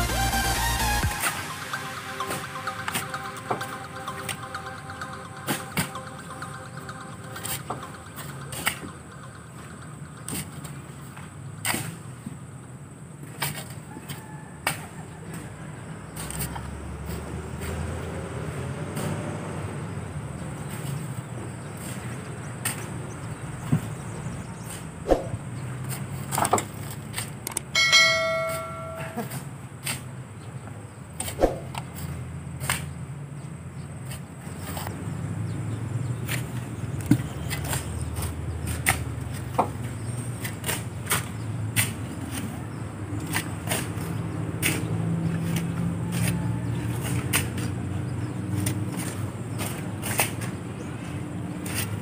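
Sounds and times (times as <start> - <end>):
metallic clang: 27.8 - 29.4
shovels scraping and knocking: 43.2 - 47.8, 51.6 - 52.0.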